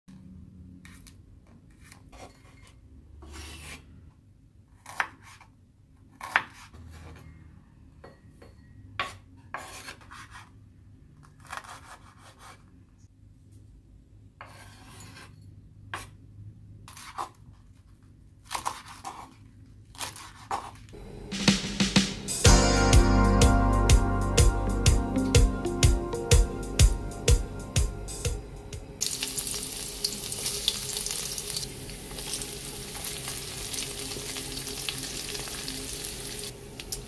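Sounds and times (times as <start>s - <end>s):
knife scraping and rubbing: 14.4s - 15.4s.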